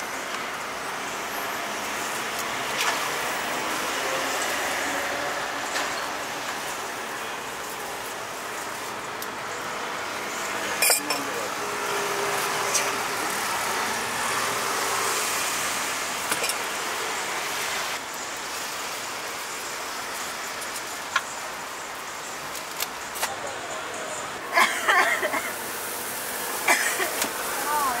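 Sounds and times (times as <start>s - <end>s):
traffic hum: 0.0s - 28.0s.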